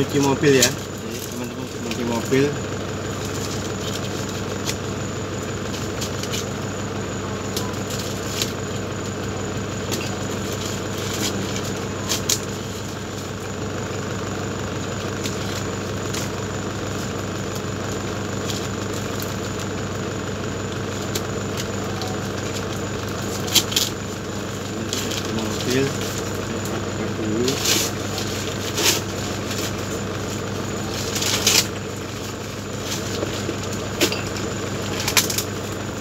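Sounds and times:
car engine idling: 0.0s - 36.0s
scissors cutting plastic packaging: 30.9s - 31.7s.

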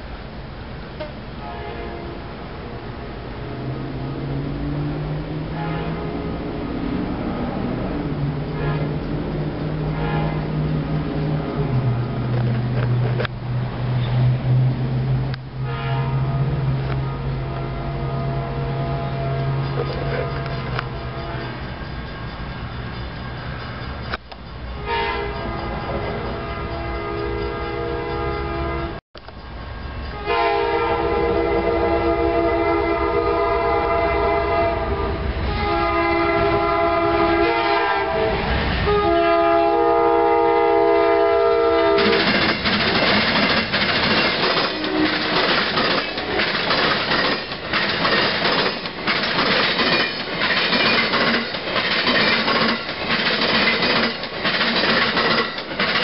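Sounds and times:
train horn blasts: 1.3s - 6.6s, 8.3s - 12.1s, 15.6s - 21.7s, 24.8s - 29.0s, 30.1s - 42.5s, 44.5s - 46.7s
train wheels clickety-clack: 19.3s - 32.1s, 41.7s - 56.0s.

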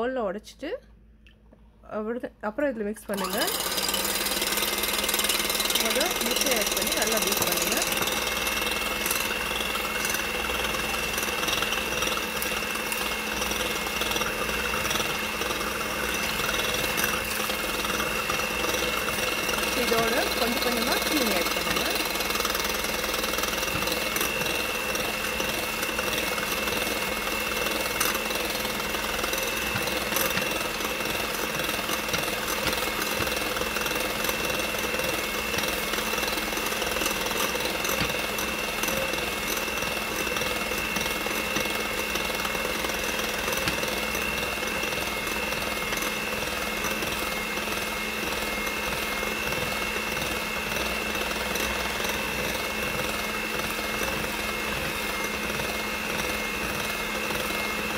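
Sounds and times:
electric hand mixer whining: 3.1s - 57.9s
beaters ticking on glass bowl: 3.4s - 12.6s.

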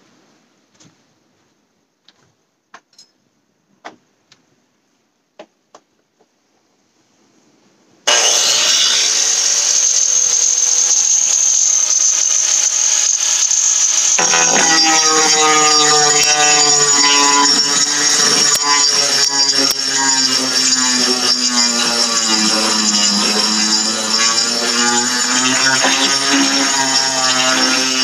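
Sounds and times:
power tool abrading hull: 8.1s - 28.0s.

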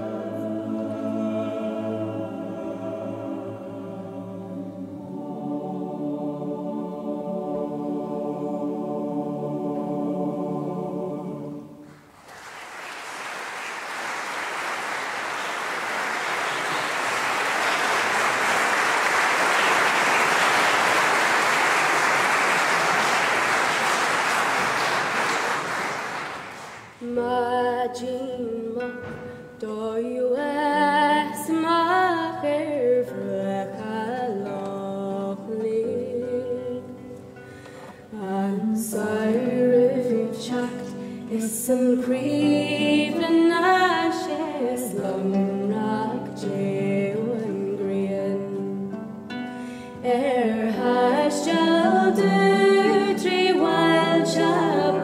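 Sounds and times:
choir singing sustained chord: 0.0s - 11.8s, 38.1s - 47.6s, 50.7s - 55.0s
audience applause: 12.1s - 27.0s
music with moving melody: 27.0s - 55.0s.

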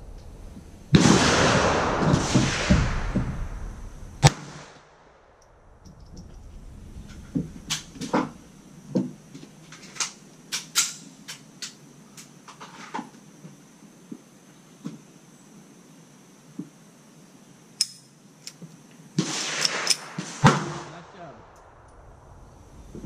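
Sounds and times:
pistol shot: 0.9s - 4.8s, 19.2s - 22.1s.

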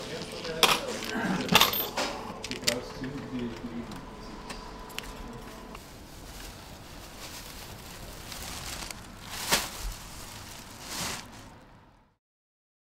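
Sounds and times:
plastic bag rustling: 5.0s - 12.0s.

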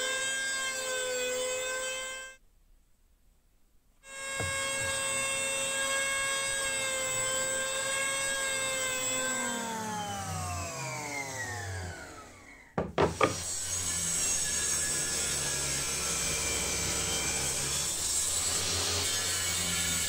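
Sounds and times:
jointer motor whining: 4.1s - 14.2s
table saw starting: 4.1s - 20.0s.

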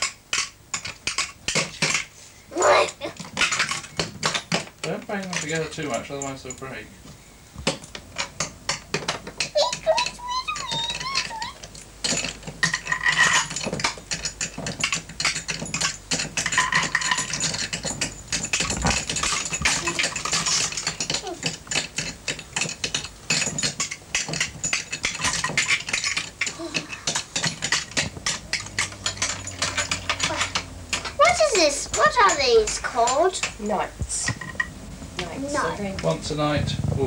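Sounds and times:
toy figures clicking and clattering: 0.0s - 6.8s, 7.6s - 37.0s
faint child voices: 9.6s - 11.6s.

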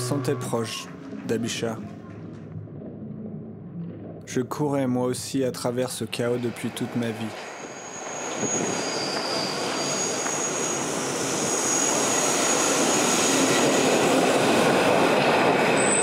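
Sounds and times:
train rumbling in tunnel: 0.0s - 2.8s, 5.5s - 16.0s
high whine of train: 6.3s - 16.0s.

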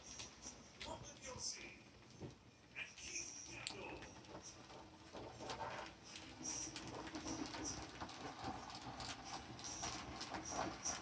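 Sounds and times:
wheels clicking and rattling on rails: 3.0s - 11.0s
faint model train motor hum: 3.3s - 11.0s.

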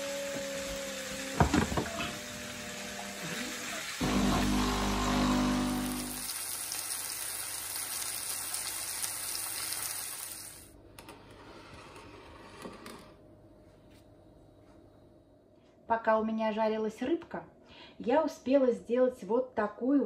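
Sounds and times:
fish frying in hot oil: 0.0s - 10.7s.

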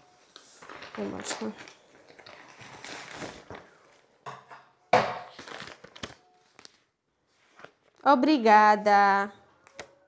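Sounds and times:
parcel packaging rustling: 0.1s - 4.2s, 5.3s - 8.0s.

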